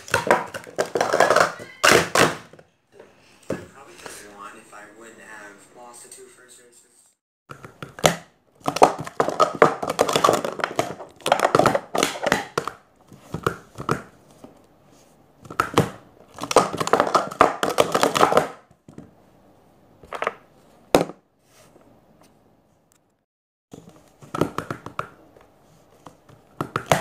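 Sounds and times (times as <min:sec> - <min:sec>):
plastic cups clattering: 0:00.0 - 0:02.6, 0:07.6 - 0:14.1, 0:15.4 - 0:18.6.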